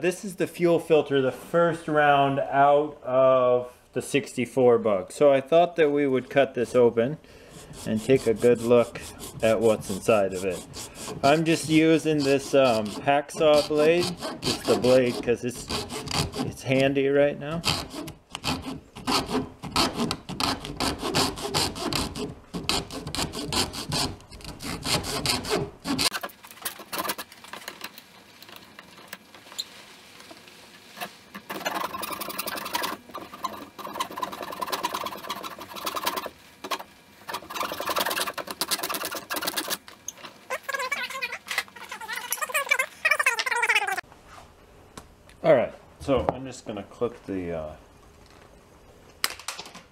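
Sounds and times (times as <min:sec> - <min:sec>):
hacksaw blade sawing plastic: 0:07.4 - 0:16.7, 0:17.5 - 0:27.3, 0:31.0 - 0:39.8.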